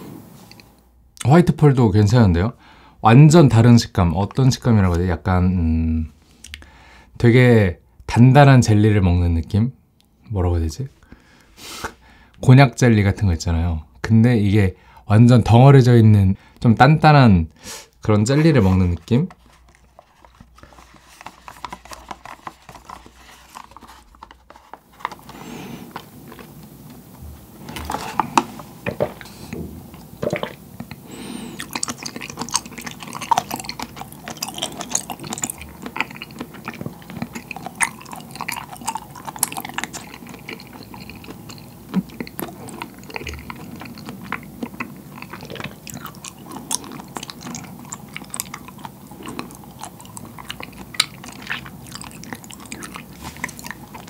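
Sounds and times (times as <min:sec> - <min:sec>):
wet chewing in mouth: 0:18.4 - 0:54.0.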